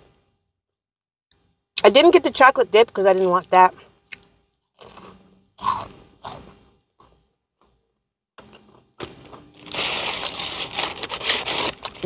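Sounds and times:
crunching and chewing churro: 0:04.8 - 0:07.2
paper sack rustling: 0:09.0 - 0:12.0.

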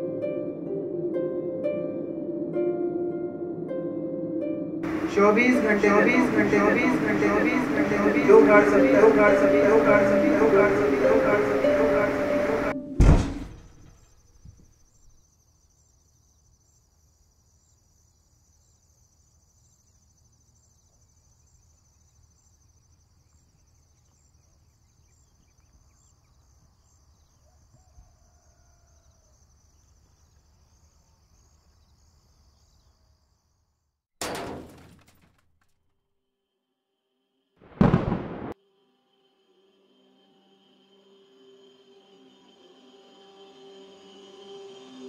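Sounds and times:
low hum: 0:04.8 - 0:13.9
high pulsing trill: 0:04.9 - 0:12.8
loud hit: 0:37.7 - 0:38.6.

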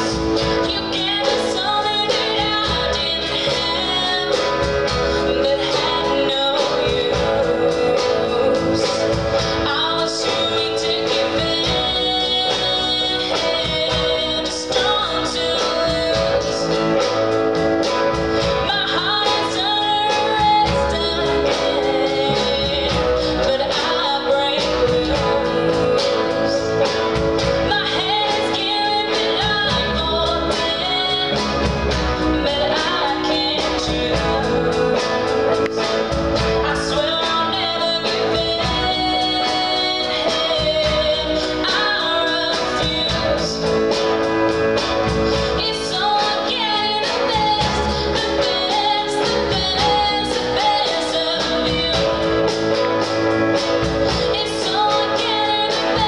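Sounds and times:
drums: 0:00.0 - 0:56.0
electric guitar: 0:00.0 - 0:56.0
keyboards: 0:00.0 - 0:56.0
person singing: 0:00.0 - 0:56.0.

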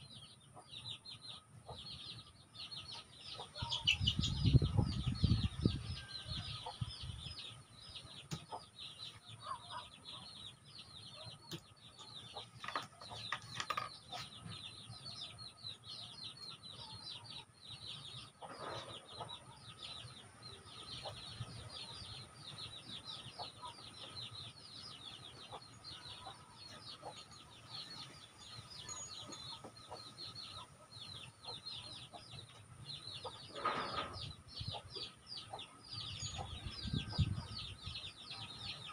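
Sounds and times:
chickens chirping: 0:00.0 - 0:38.9.

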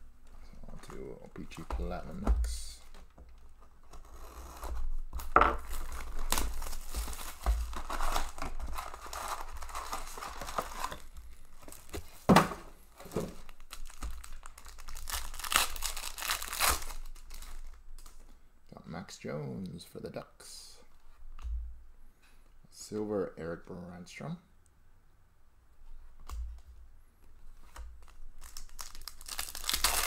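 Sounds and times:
plastic wrap crinkling: 0:00.8 - 0:12.3, 0:12.9 - 0:18.4, 0:27.4 - 0:30.0
foil pack tearing: 0:05.7 - 0:11.0, 0:13.5 - 0:17.6, 0:28.0 - 0:30.0.

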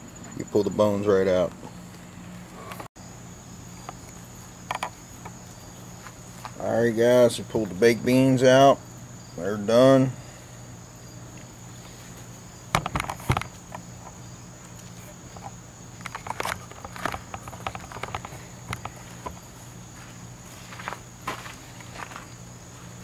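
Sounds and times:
crickets chirring: 0:00.0 - 0:23.0.

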